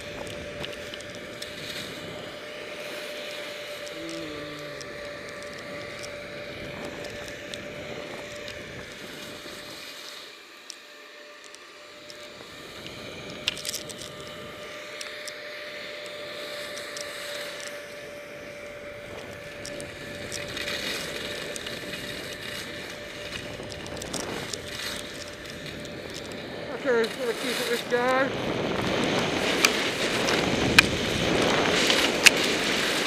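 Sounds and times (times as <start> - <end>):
skis sliding over snow: 0.0 - 33.0
wind on microphone: 3.9 - 9.8, 18.0 - 33.0.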